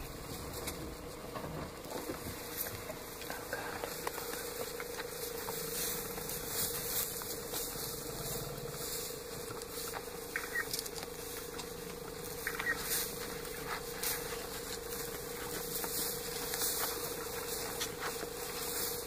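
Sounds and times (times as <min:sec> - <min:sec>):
dry grass rustling and crackling: 0:00.0 - 0:19.0
steady hum: 0:00.0 - 0:19.0.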